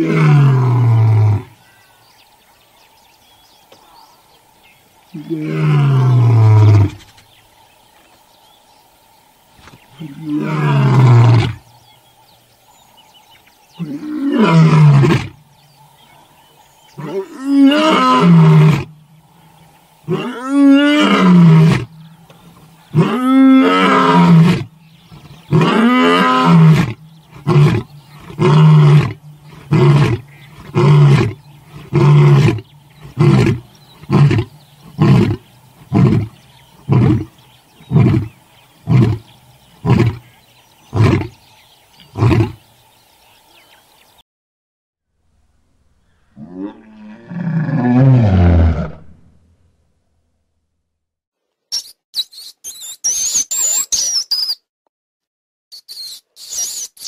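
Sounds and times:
lion roaring: 0:00.0 - 0:01.5, 0:05.1 - 0:07.0, 0:10.0 - 0:11.7, 0:13.8 - 0:15.4, 0:16.9 - 0:41.4, 0:42.1 - 0:42.6, 0:46.3 - 0:49.4.

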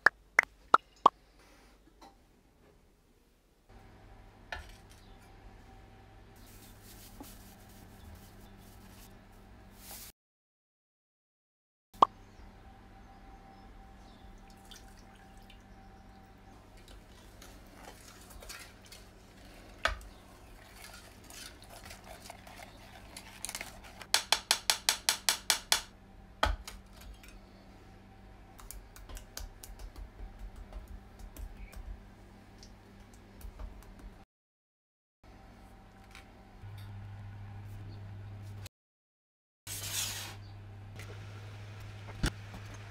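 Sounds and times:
utensil scraping metal pot: 0:20.4 - 0:24.1
steady low hum: 0:25.9 - 0:34.2.

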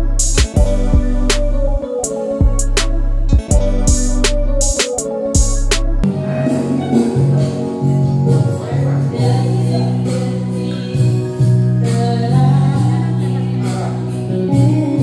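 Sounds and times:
backing music: 0:00.0 - 0:15.0
woman singing into microphone: 0:09.0 - 0:15.0.

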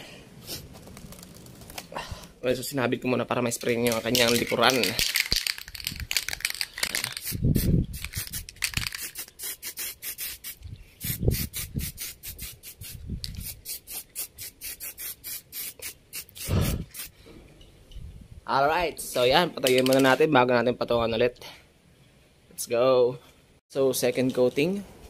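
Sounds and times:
spray can hissing: 0:06.2 - 0:17.1.

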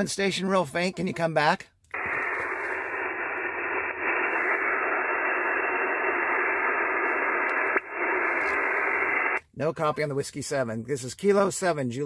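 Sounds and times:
radio receiver hiss: 0:01.9 - 0:09.4.

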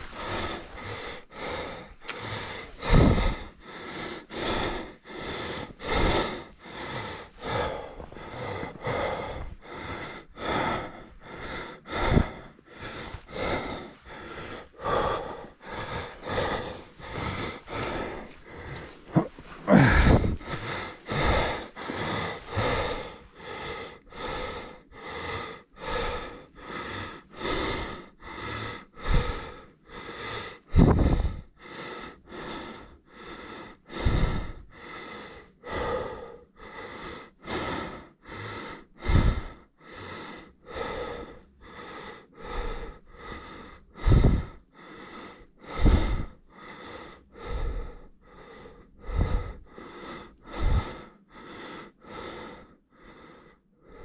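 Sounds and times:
heavy rhythmic breathing: 0:00.0 - 0:54.0
breath puffing on microphone: 0:05.6 - 0:23.2.

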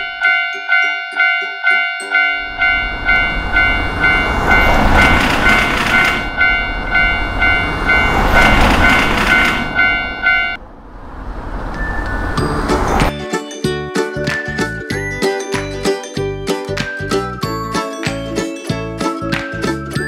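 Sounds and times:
railway crossing bell dinging: 0:00.0 - 0:10.6
passing train rumble and clatter: 0:02.2 - 0:13.1.

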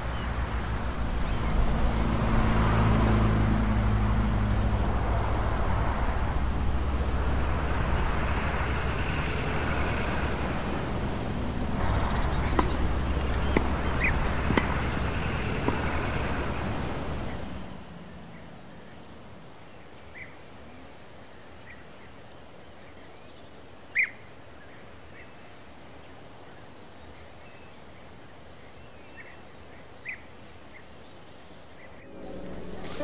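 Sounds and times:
insect trill: 0:00.0 - 0:19.9
bird chirps: 0:11.9 - 0:15.4.

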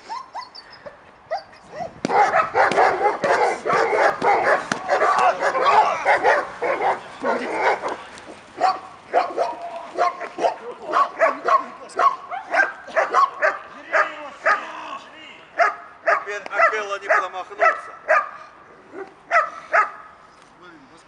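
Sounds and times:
dog barking and yelping: 0:00.0 - 0:08.0, 0:08.6 - 0:14.7, 0:15.6 - 0:20.0.

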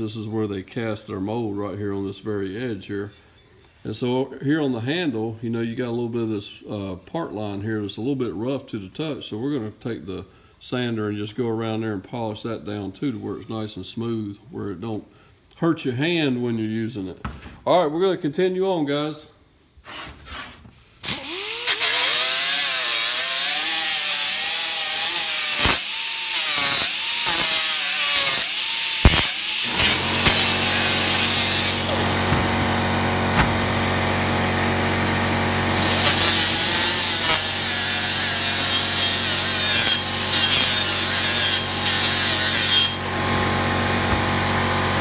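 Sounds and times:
die grinder grinding iron: 0:21.0 - 0:45.0
steady low hum: 0:29.7 - 0:36.9.

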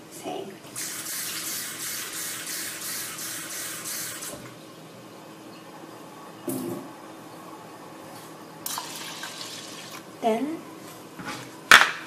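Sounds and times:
tap water running: 0:00.7 - 0:04.6, 0:08.6 - 0:10.1.

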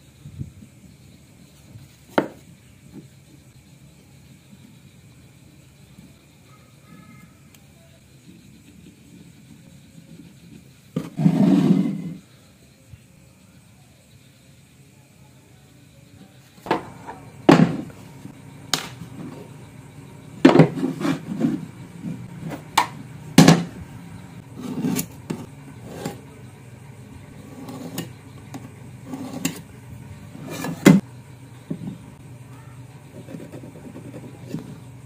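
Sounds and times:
tools knocking on workbench: 0:16.7 - 0:17.9, 0:20.4 - 0:21.6.

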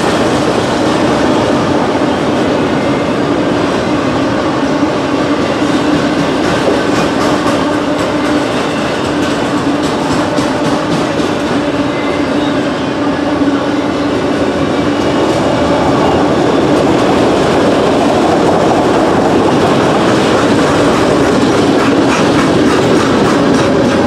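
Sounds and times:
freight train rumbling: 0:00.0 - 0:24.0
wheels clicking over rail joints: 0:06.1 - 0:11.7, 0:16.8 - 0:24.0.

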